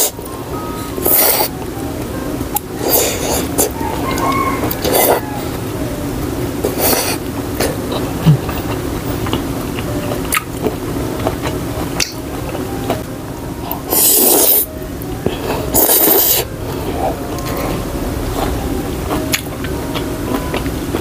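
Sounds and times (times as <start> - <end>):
wet chewing with mouth clicks: 6.6 - 13.1, 13.7 - 21.0
slurping noodles: 13.9 - 14.7, 15.4 - 17.6.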